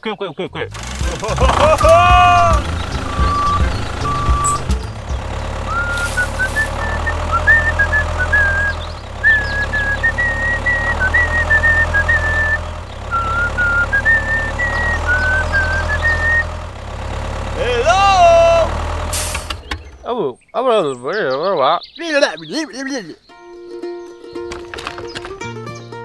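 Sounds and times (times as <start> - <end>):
tractor engine running low: 0.6 - 20.1
short high beeps: 3.0 - 4.7.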